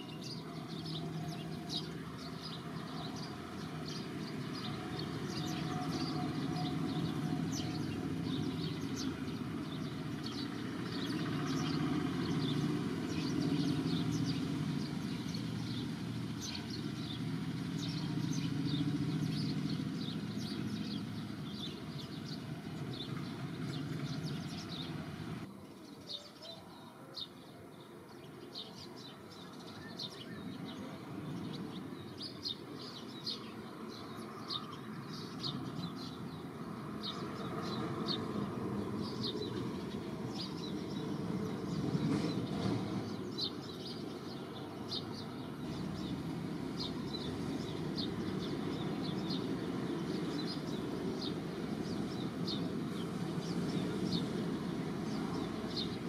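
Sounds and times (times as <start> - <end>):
bird chirps: 0.0 - 27.2.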